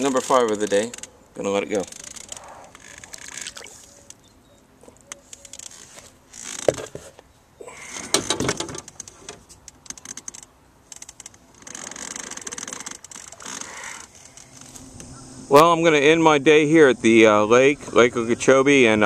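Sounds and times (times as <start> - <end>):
gear clicking and rattling: 1.7 - 3.5, 8.0 - 14.7.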